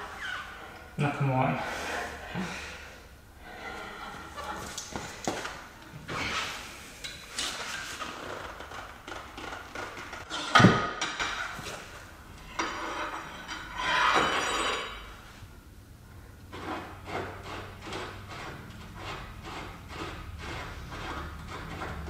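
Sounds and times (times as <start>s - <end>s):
metal bar clanking and scraping: 10.2s - 15.2s.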